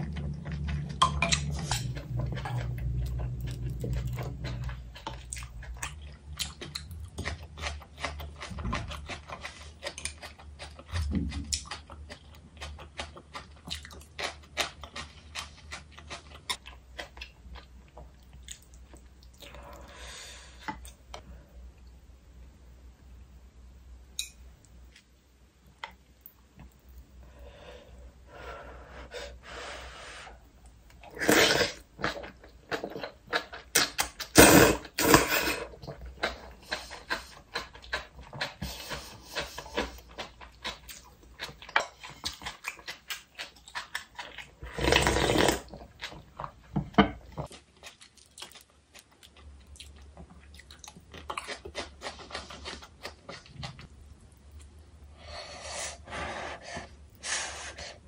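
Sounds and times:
noodle slurps: 44.6s - 45.7s.

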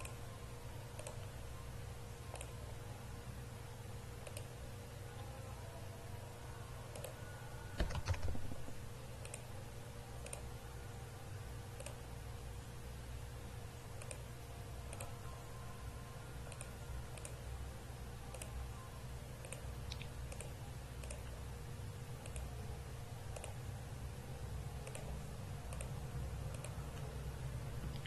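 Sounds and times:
computer mouse clicking: 0.9s - 1.3s, 2.3s - 2.6s, 4.2s - 4.6s, 6.9s - 7.2s, 7.8s - 8.6s, 9.2s - 9.5s, 10.2s - 10.5s, 11.8s - 12.0s, 14.0s - 14.3s, 14.9s - 15.1s, 16.5s - 17.4s, 18.3s - 18.6s, 19.4s - 21.4s, 22.2s - 22.5s, 23.3s - 23.6s, 24.8s - 27.1s.

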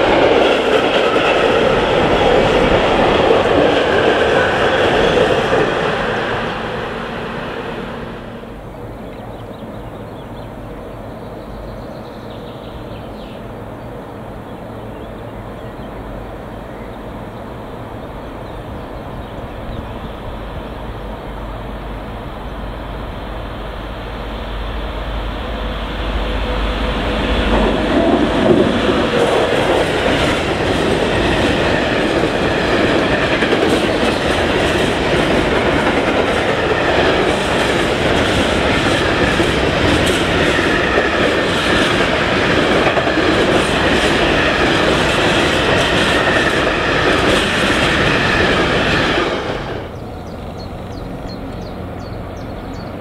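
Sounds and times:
train wheels clicking: 0.0s - 7.2s, 26.2s - 53.0s
train approaching rumble: 0.0s - 53.0s
train wagons rolling past: 0.0s - 53.0s.

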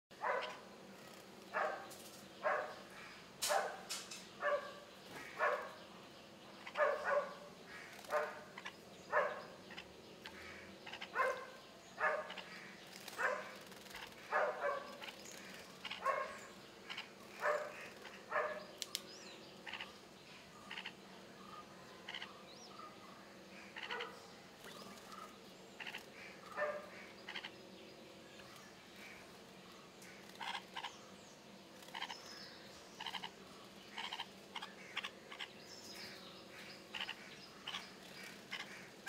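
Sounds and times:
dog barking: 0.2s - 0.6s, 1.5s - 2.8s, 3.5s - 4.8s, 5.4s - 5.8s, 6.7s - 7.5s, 8.1s - 8.4s, 9.1s - 9.5s, 11.2s - 12.4s, 13.2s - 13.6s, 14.3s - 15.0s, 16.0s - 16.4s, 17.4s - 18.7s, 23.8s - 24.2s, 26.6s - 26.9s.

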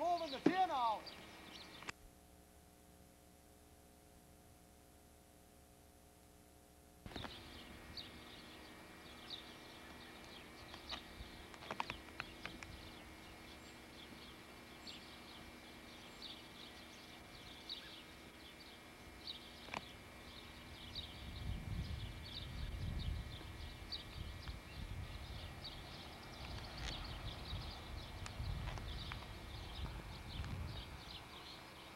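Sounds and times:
high chirps of birds or insects: 0.0s - 2.0s, 7.1s - 31.9s
faint steady hum: 0.0s - 31.9s
camera handling rumble: 7.1s - 7.4s, 10.2s - 12.8s, 26.4s - 27.5s, 28.1s - 30.8s.

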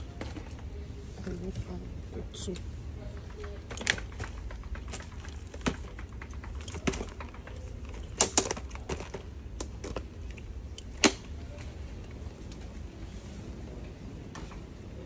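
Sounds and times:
steady low hum: 0.0s - 15.0s
light handling clicks and knocks: 2.4s - 13.0s, 13.8s - 14.9s.

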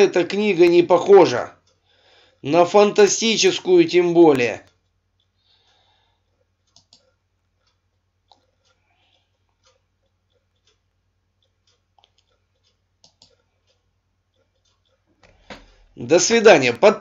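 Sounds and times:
computer mouse clicks: 4.6s - 15.9s.

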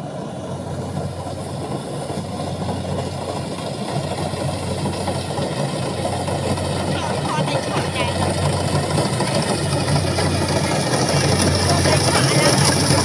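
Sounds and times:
combine harvester diesel engine: 0.0s - 13.0s.

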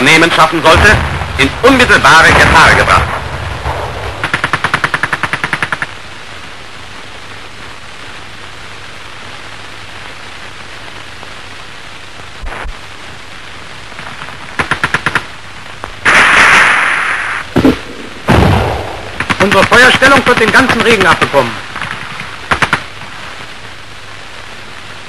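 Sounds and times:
film soundtrack hiss: 0.0s - 25.0s
loud blast of noise: 0.5s - 4.3s, 16.0s - 19.2s
machine-gun fire: 0.7s - 6.0s, 14.6s - 15.3s, 16.0s - 23.0s.

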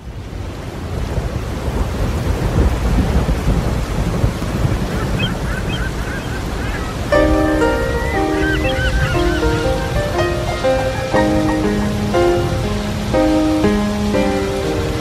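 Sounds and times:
stormy sea waves: 0.0s - 15.0s
wind: 0.0s - 15.0s
faint high bird cries: 5.0s - 11.9s.

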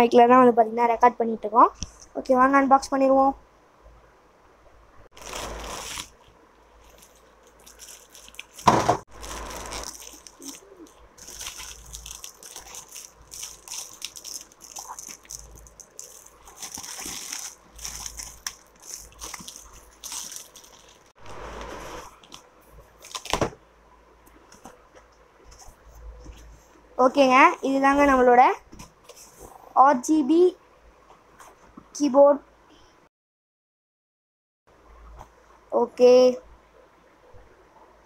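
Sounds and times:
plastic wrap crinkling: 5.1s - 21.2s, 22.0s - 23.6s
sharp crackle or knock: 8.4s - 10.5s.

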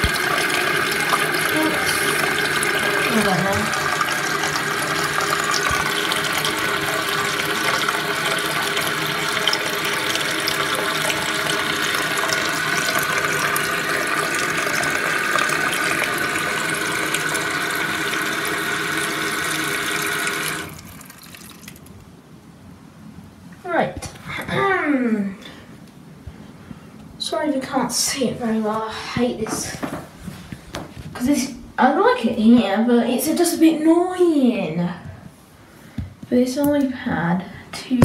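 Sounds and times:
toilet cistern refilling: 0.0s - 21.9s.

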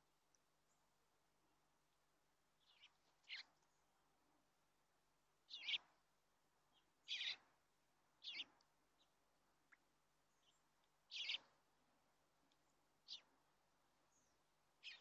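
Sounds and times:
bird calls: 2.6s - 3.8s, 5.5s - 5.9s, 6.7s - 7.5s, 8.2s - 11.6s, 13.0s - 13.3s, 14.1s - 15.0s.

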